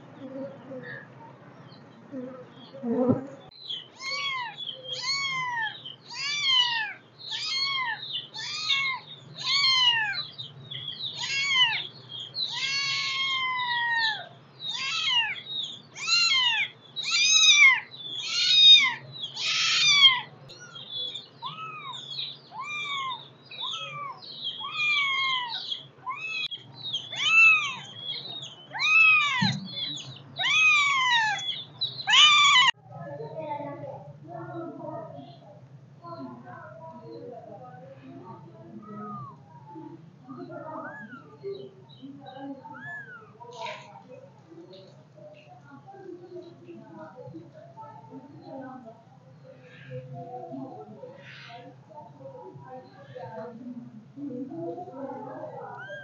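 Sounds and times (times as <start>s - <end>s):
kittens mewing: 3.9s - 10.4s, 11.1s - 32.8s, 55.1s - 56.0s.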